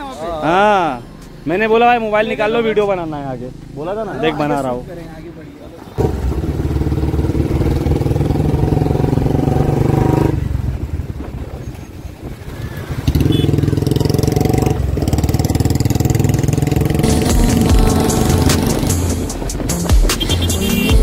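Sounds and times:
motorcycle engine running: 5.9 - 21.0.

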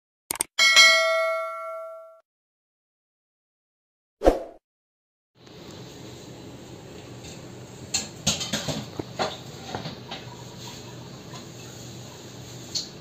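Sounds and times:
low kitchen hum: 5.4 - 13.0.

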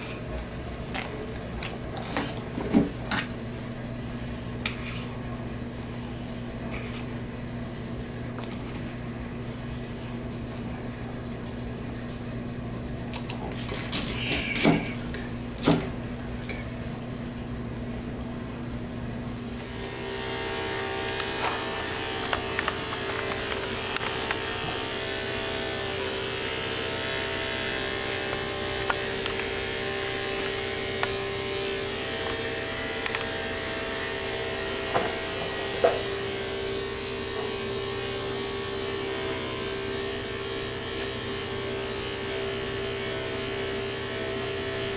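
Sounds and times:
low steady hum: 0.0 - 41.6
electric clippers buzzing: 13.2 - 16.1, 19.2 - 44.9.

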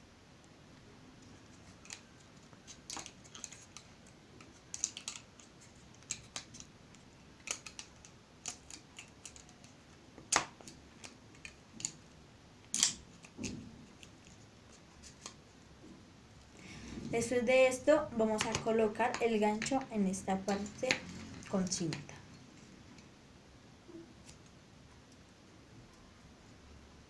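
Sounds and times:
rubber bands clicking and snapping: 1.8 - 12.0, 12.7 - 14.4.

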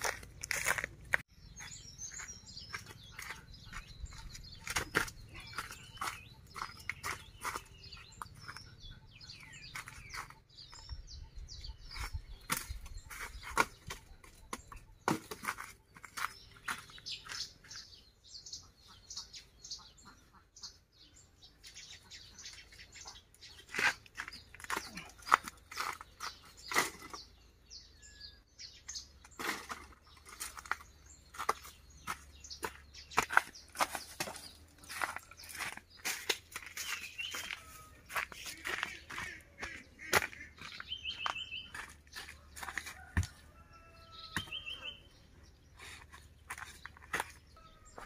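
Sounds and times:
dry leaves and twigs crunching: 0.0 - 10.9, 23.5 - 27.4, 29.1 - 45.0, 45.8 - 48.0
small birds chirping: 0.0 - 48.0.

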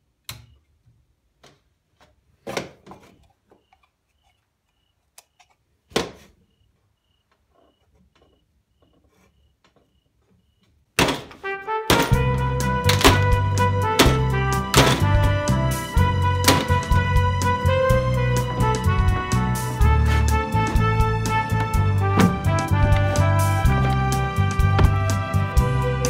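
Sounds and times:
objects handled on a shelf: 0.8 - 6.4
loud music: 11.8 - 26.0.

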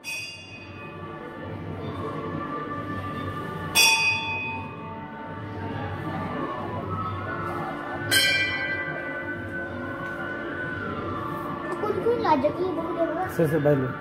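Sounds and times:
metal bell ringing: 0.0 - 0.9, 3.8 - 4.8, 8.1 - 9.3.

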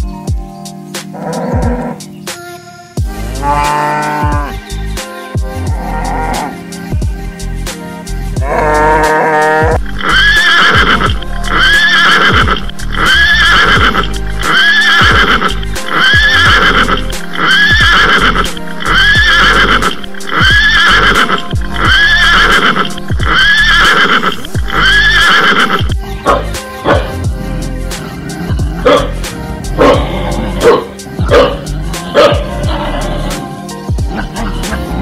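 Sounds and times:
music: 0.0 - 35.0
horse whinny: 1.2 - 2.0, 8.5 - 25.9.

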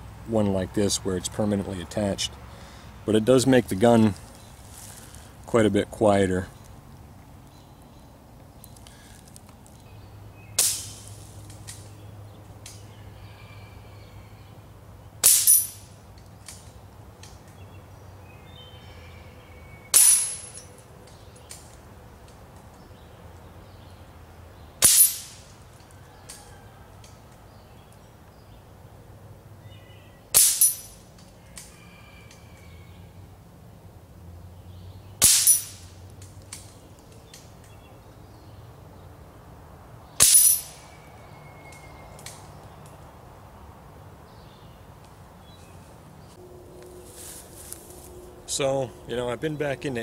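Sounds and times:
air rifle shots: 10.6 - 11.0, 24.8 - 25.5, 30.3 - 30.8, 35.2 - 35.9, 40.2 - 40.8
pellet pinging steel target: 10.6 - 11.0, 15.2 - 16.0, 19.9 - 20.7, 24.8 - 25.6, 30.3 - 31.1, 35.2 - 36.0, 40.2 - 40.8.

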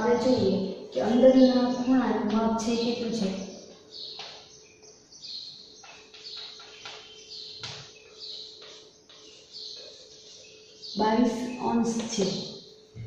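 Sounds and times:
chalk scratching on blackboard: 8.0 - 13.0.

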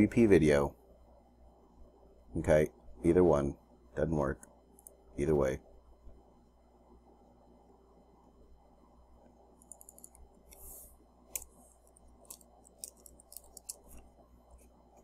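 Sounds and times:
faint low hum: 0.0 - 15.0
computer mouse clicks: 4.4 - 5.0, 9.6 - 10.6, 11.3 - 15.0
keyboard keystrokes: 9.6 - 10.2.

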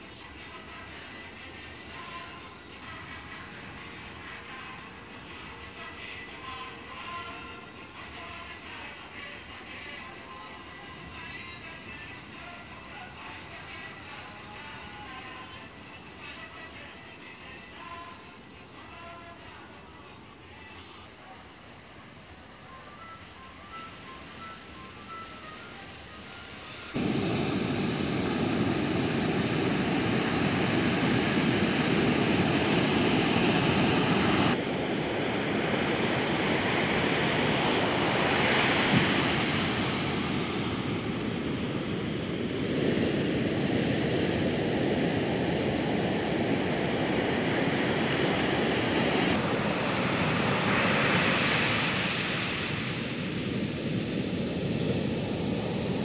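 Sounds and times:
surf breaking on a beach: 27.0 - 56.0.

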